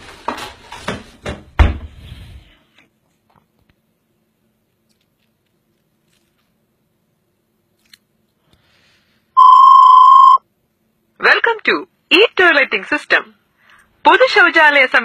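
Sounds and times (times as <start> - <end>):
electronic beep: 9.4 - 10.4.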